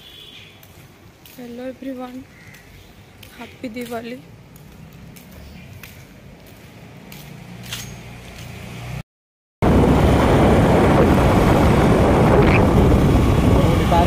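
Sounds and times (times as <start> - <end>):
wind and road noise rushing: 2.2 - 9.0, 9.6 - 14.0.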